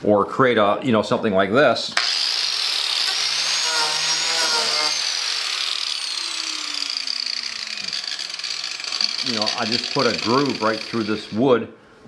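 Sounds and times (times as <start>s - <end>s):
angle grinder cutting wood: 2.0s - 11.5s.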